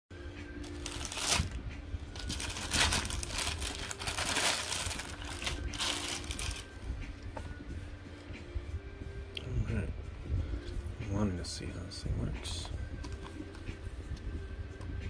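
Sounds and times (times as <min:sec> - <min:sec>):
plastic mailer crinkling and tearing: 0:00.6 - 0:06.7.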